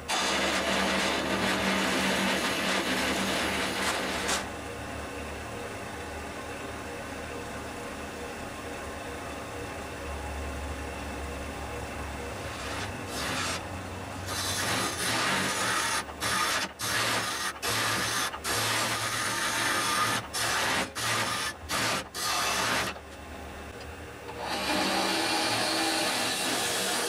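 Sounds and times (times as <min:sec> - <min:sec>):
lathe motor hum: 0:00.0 - 0:27.0
tool scraping wood on lathe: 0:12.5 - 0:13.6, 0:14.3 - 0:23.0.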